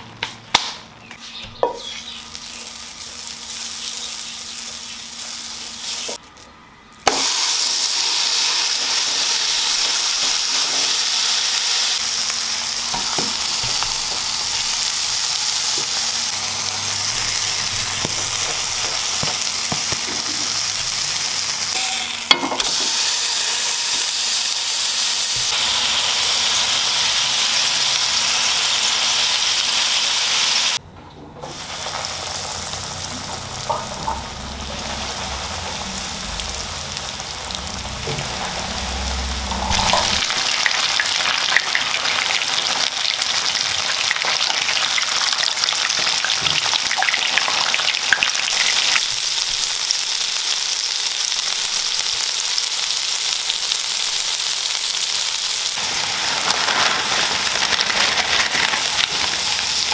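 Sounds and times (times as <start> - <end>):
patty sizzling in a frying pan: 1.7 - 6.4, 7.0 - 30.8, 31.4 - 59.9
food deep-frying in bubbling oil: 7.0 - 21.7, 31.5 - 59.9
water boiling: 7.6 - 21.5, 31.7 - 59.9.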